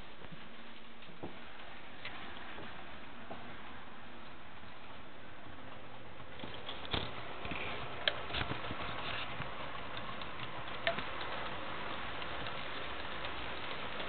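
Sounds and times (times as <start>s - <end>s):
model train running on track: 4.3s - 14.0s.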